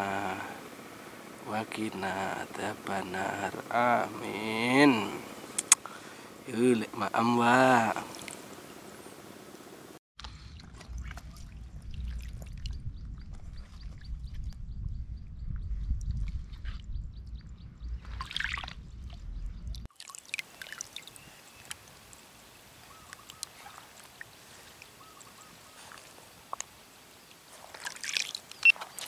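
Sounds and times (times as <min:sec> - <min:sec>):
water ripples lapping: 0:00.0 - 0:14.1, 0:18.0 - 0:19.2, 0:19.8 - 0:29.0
wind rumbling on microphone: 0:10.2 - 0:19.9.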